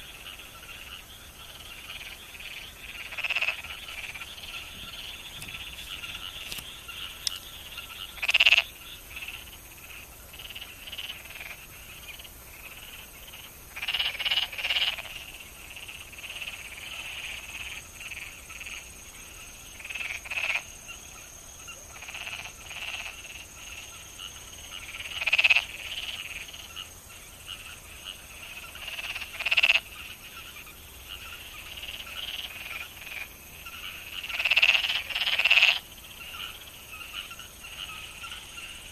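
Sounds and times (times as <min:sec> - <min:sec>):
chorus of frogs calling: 0:00.0 - 0:38.9
close frog calls: 0:00.0 - 0:38.9.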